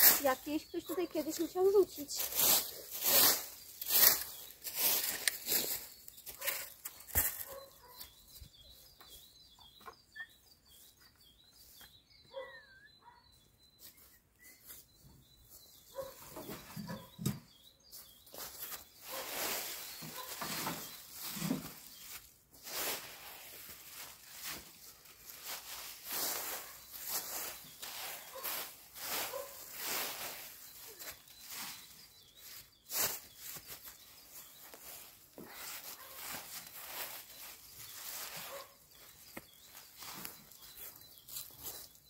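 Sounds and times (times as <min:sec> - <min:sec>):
leaves rustling: 0:00.0 - 0:07.6, 0:18.3 - 0:42.0
rake scraping dry leaves: 0:00.0 - 0:08.1, 0:18.3 - 0:42.0
small birds chirping: 0:00.0 - 0:42.0.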